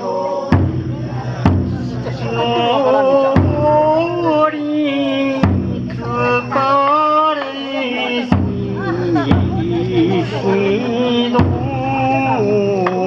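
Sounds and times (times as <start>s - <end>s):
person singing long sliding notes: 0.0s - 13.0s
taiko drum hits: 0.5s - 4.4s, 5.4s - 6.8s, 8.3s - 10.4s, 11.3s - 12.2s.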